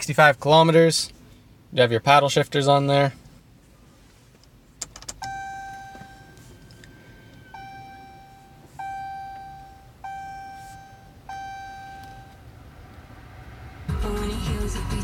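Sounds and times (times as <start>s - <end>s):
dashboard warning chime: 5.1s - 12.5s.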